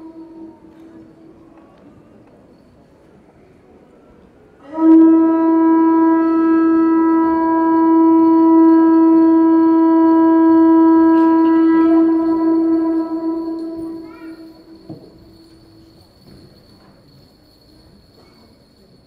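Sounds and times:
conch shell trumpet note: 0:00.0 - 0:01.1, 0:04.6 - 0:16.0.

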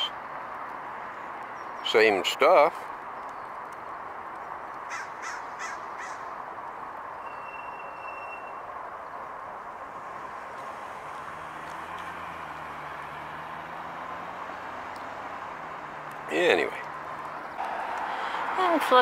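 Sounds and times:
street traffic hum: 0:00.0 - 0:19.0
thin whistle-like tone: 0:07.2 - 0:08.7
car engine: 0:08.8 - 0:19.0.

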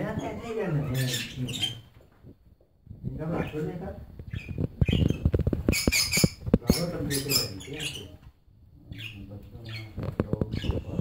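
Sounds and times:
cockatiels chirping: 0:04.3 - 0:08.2, 0:08.9 - 0:11.0.

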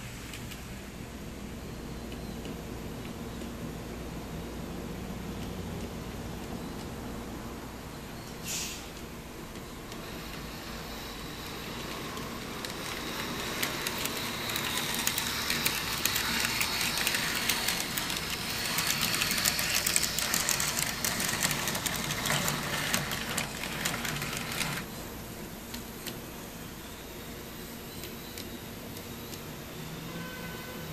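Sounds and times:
wheels clicking on rails: 0:09.0 - 0:24.9
small electric motor whine: 0:09.8 - 0:24.9.

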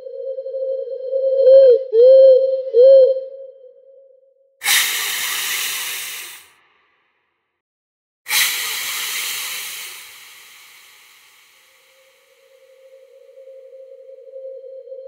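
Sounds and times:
hissing sound effect: 0:04.6 - 0:06.5, 0:08.3 - 0:12.5.

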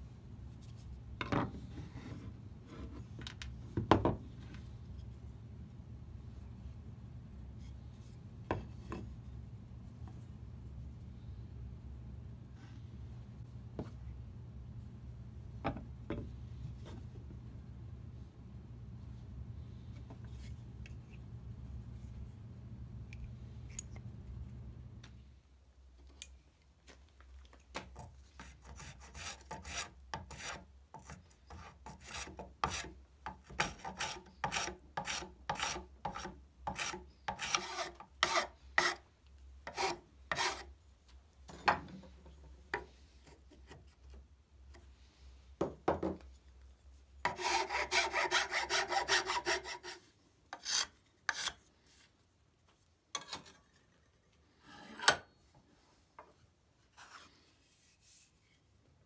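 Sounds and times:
file strokes on wood: 0:28.4 - 0:39.0, 0:39.6 - 0:40.7, 0:47.2 - 0:52.1.

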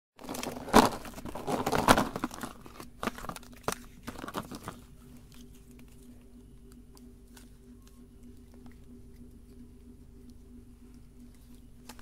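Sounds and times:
paper wrappers crinkling: 0:00.2 - 0:06.4.

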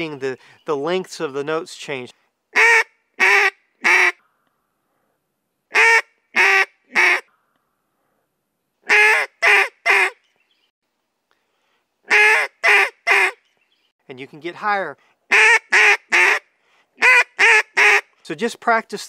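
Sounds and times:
duck call quacks: 0:02.6 - 0:04.2, 0:05.7 - 0:07.3, 0:08.9 - 0:10.2, 0:12.1 - 0:13.4, 0:15.3 - 0:16.4, 0:17.0 - 0:18.1.

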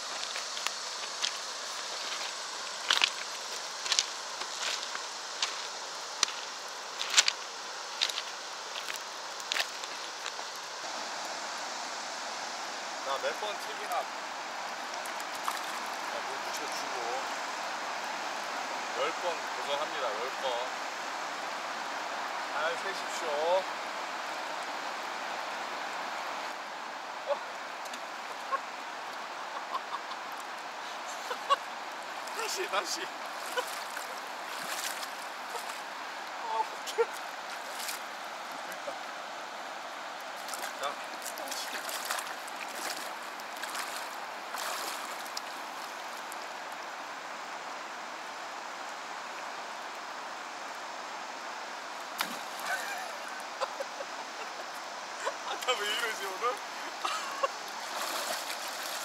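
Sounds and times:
river current running: 0:00.0 - 0:59.0
faint water plips: 0:14.9 - 0:15.9, 0:40.2 - 0:46.5
skipped stone splashing: 0:52.2 - 0:52.9.

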